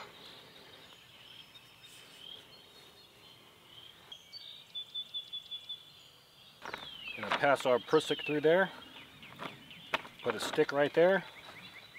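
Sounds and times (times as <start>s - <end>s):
birds calling faintly: 0.0s - 11.9s.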